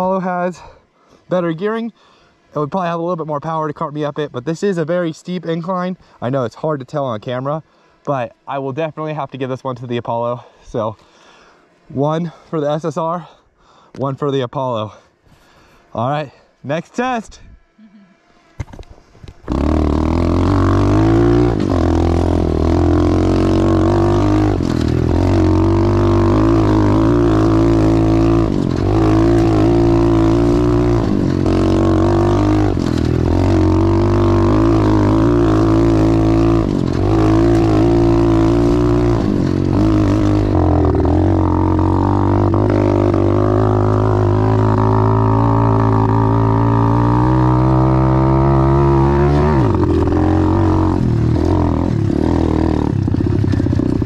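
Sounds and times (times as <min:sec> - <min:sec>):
pit bike engine revving: 0:19.3 - 0:54.0.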